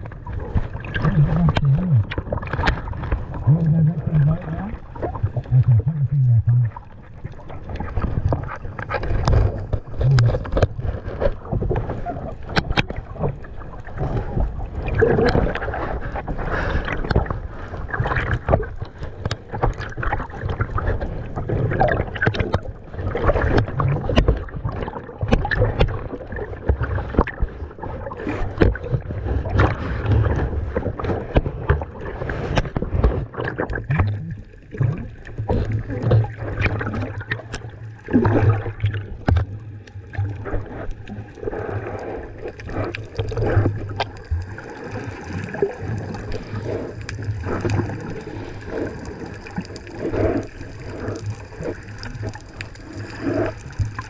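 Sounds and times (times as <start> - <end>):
water sloshing and gurgling: 0.0 - 54.0
low rumbling: 0.9 - 11.0.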